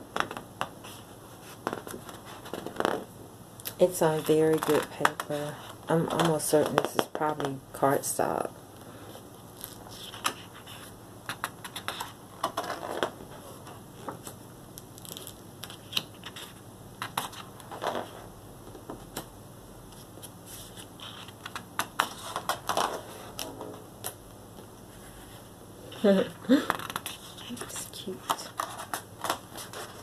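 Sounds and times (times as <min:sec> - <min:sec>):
book pages turning: 0:00.1 - 0:03.1, 0:04.0 - 0:07.6, 0:09.5 - 0:19.3, 0:19.9 - 0:24.2, 0:26.6 - 0:30.0.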